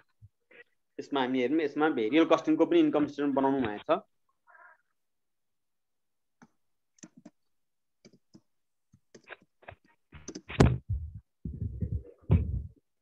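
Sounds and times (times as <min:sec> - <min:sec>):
keyboard typing: 0:07.0 - 0:07.4, 0:08.0 - 0:09.6, 0:10.2 - 0:10.6
deep knock: 0:10.6 - 0:12.8.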